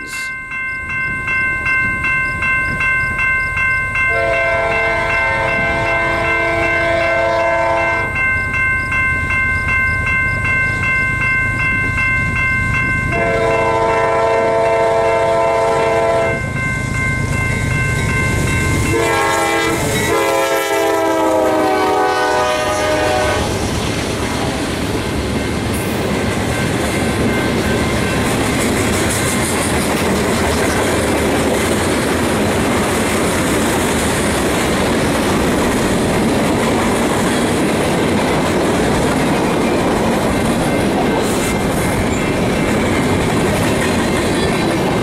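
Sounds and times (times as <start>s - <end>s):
crossing bell ringing: 0.0s - 45.0s
train rumble: 0.0s - 45.0s
locomotive air horn blasts: 4.1s - 8.1s, 13.1s - 16.4s, 18.9s - 23.6s
train wheels clacking: 22.9s - 45.0s.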